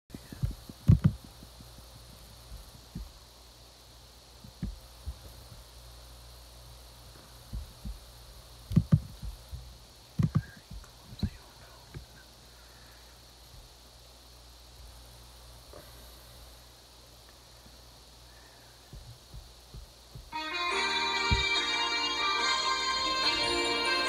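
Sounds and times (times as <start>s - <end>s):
low electrical hum: 0.1s - 24.0s
handling noise thumps: 21.2s - 21.6s.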